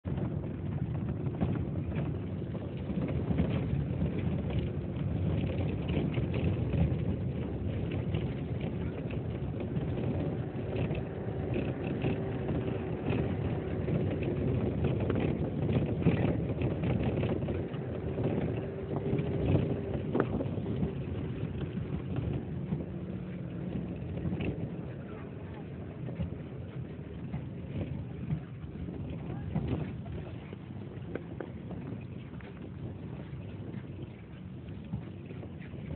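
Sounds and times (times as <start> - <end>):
vehicle engine drone: 0.0 - 35.9
small rattles and knocks: 0.1 - 35.9
road noise: 0.2 - 35.9.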